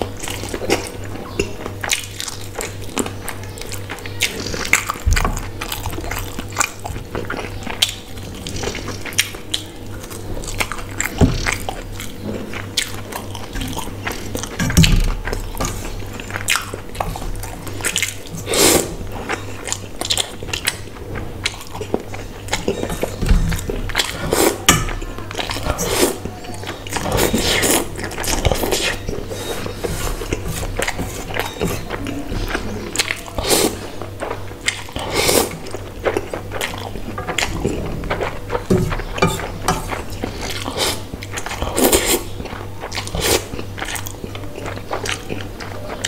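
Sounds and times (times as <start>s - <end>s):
chewing and mouth sounds: 0.0s - 46.0s
wet noodle slurps: 18.4s - 19.0s, 34.8s - 35.6s.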